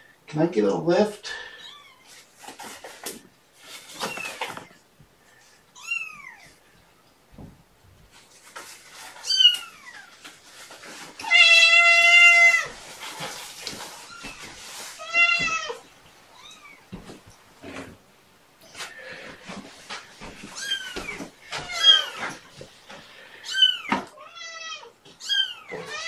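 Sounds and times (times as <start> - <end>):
cat meowing: 11.2 - 12.7, 15.0 - 16.9, 20.6 - 22.3.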